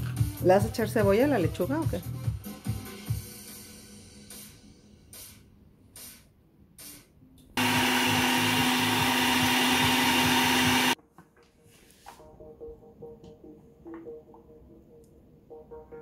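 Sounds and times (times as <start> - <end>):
blender running: 7.6 - 11.0.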